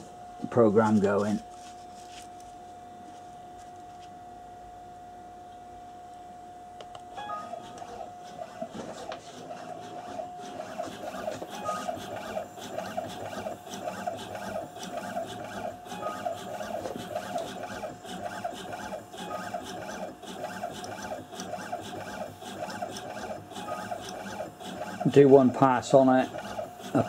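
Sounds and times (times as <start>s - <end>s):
coil winding machine whining: 7.2s - 27.0s.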